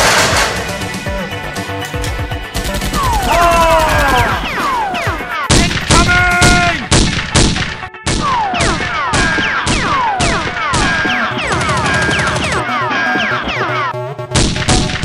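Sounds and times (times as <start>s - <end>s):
pistol shots: 0.0s - 0.8s.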